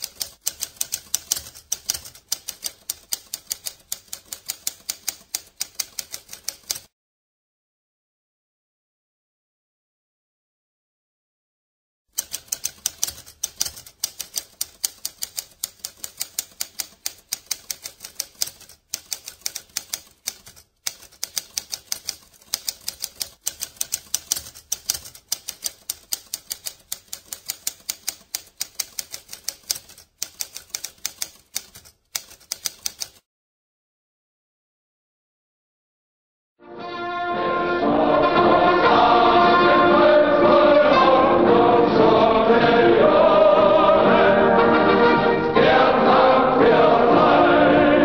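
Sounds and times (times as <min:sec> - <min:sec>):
typewriter key strikes: 0:00.0 - 0:06.9, 0:12.2 - 0:33.2.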